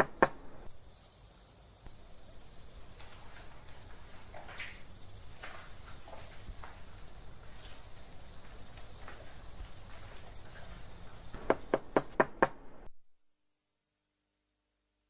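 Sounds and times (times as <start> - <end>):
crickets chirping: 0.0 - 12.9
knocks on wooden door: 11.4 - 12.6.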